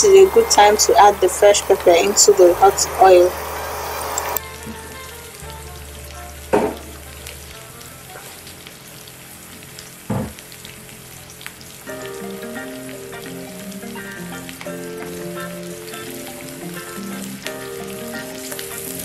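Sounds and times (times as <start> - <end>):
soft background music: 0.0 - 8.9, 11.9 - 19.0
oil sizzling in a frying pan: 0.0 - 19.0.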